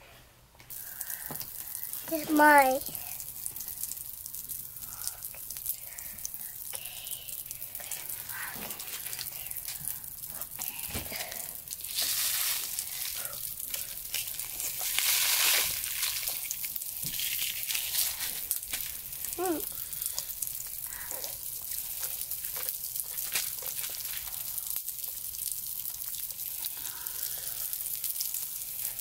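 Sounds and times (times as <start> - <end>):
popping candy crackling: 0.7 - 29.0
candy packet crinkling: 10.7 - 25.2.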